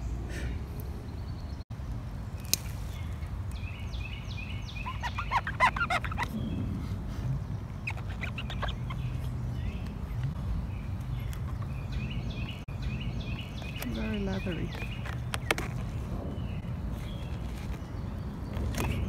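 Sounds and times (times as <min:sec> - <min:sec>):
rapid chattering bird calls: 0:03.9 - 0:10.3
steady low rumble: 0:06.0 - 0:13.6.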